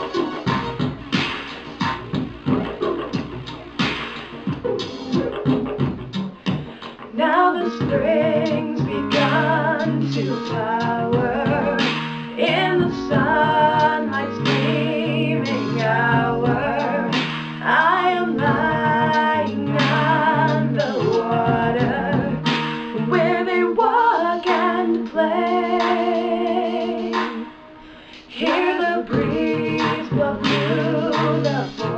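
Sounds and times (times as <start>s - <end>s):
instrumental backing: 0.0s - 31.9s
harmony vocal: 6.4s - 31.9s
woman singing with vibrato: 7.0s - 31.9s.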